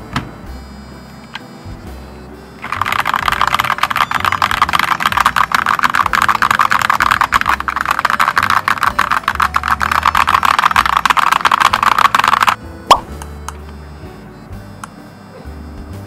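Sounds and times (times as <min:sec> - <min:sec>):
mechanical keyboard typing: 0:02.6 - 0:13.0.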